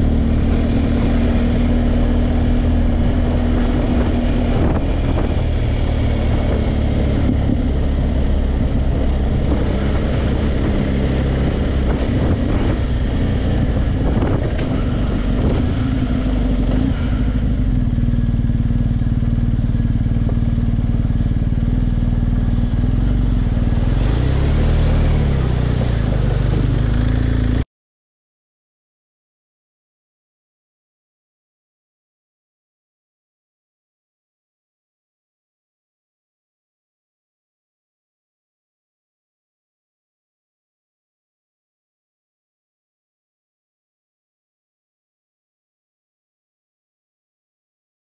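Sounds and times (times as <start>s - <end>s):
motorcycle engine running: 0.0s - 27.6s.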